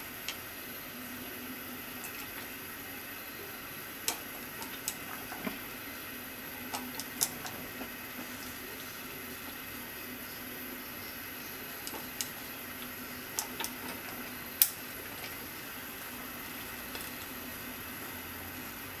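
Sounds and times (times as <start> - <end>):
soup simmering hiss: 0.0 - 19.0
chopsticks clicking: 4.0 - 5.6, 6.6 - 7.8, 11.8 - 15.4.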